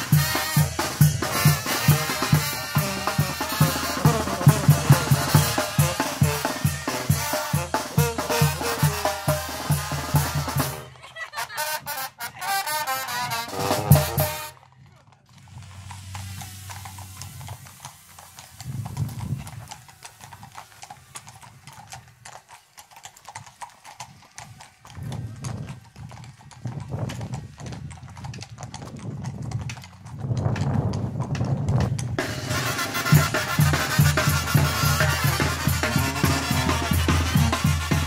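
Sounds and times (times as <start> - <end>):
music: 0.0 - 10.9, 11.6 - 14.5, 32.2 - 38.0
horse hooves clopping on pavement: 0.0 - 38.0.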